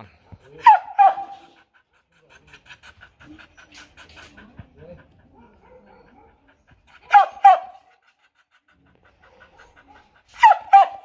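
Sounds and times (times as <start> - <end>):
dog panting: 0.1 - 11.0
dog barking: 0.2 - 1.5, 5.3 - 6.5, 7.1 - 7.8, 9.3 - 11.0.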